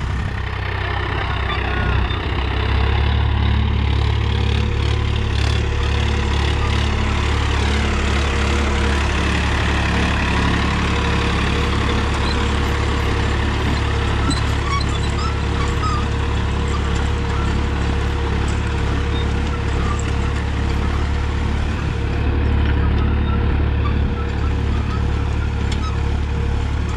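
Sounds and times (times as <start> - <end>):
tractor diesel engine under load: 0.0 - 26.9.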